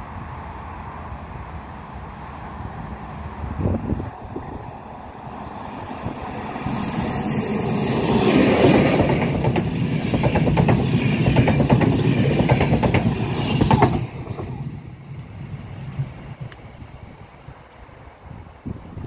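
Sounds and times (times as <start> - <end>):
train wheels clattering over rail joints: 8.2 - 16.7.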